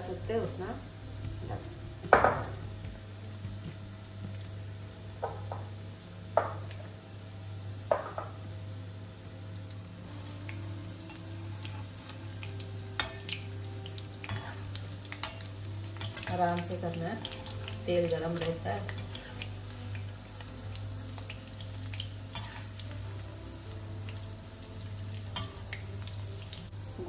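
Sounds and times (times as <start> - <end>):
steady low hum: 0.0 - 7.9
batter frying in hot oil: 0.0 - 27.0.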